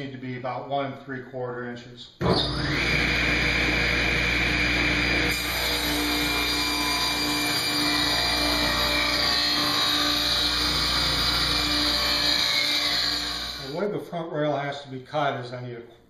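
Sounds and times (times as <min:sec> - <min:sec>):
table saw ripping wood: 0:02.2 - 0:13.8.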